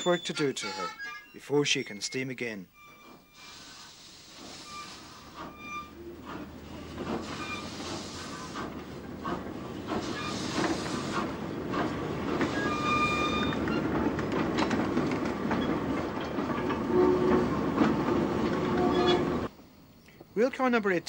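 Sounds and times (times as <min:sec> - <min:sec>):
wagons rolling and clanking on rails: 0:00.0 - 0:19.5
wheel squeals: 0:00.0 - 0:19.5.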